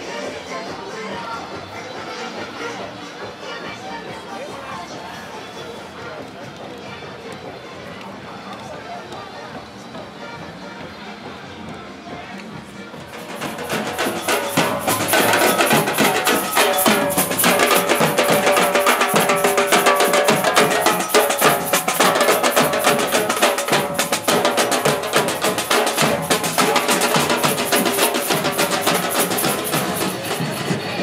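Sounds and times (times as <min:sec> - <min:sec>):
drums with metal shells: 0:12.1 - 0:31.0.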